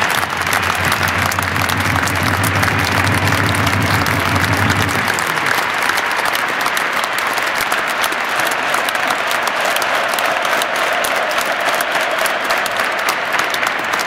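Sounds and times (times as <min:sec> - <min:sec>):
low hum: 0:00.0 - 0:06.3
stadium crowd applauding: 0:00.0 - 0:14.0.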